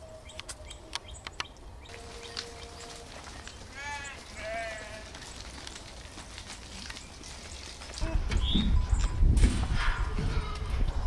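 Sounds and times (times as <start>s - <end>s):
sheep bleating: 3.7s - 5.2s.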